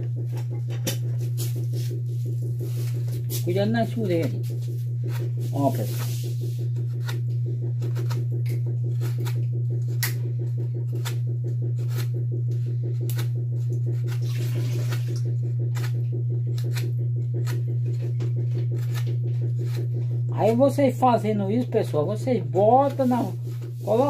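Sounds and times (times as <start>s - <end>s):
loud low hum: 0.0s - 24.0s
knife scraping wood: 4.4s - 10.2s, 10.9s - 12.2s, 12.9s - 15.1s, 15.7s - 20.6s, 22.6s - 24.0s.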